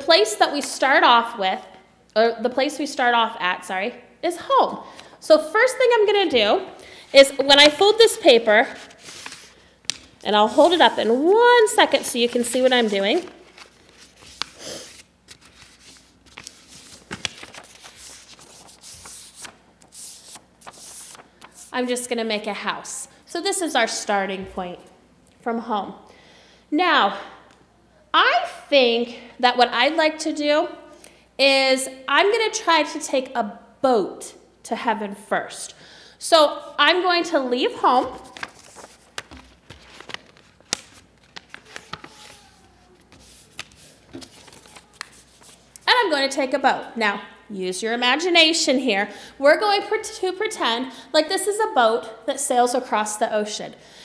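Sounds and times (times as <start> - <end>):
paper rustling: 7.1 - 21.8, 38.0 - 45.8
paper creasing clicks: 38.2 - 45.6.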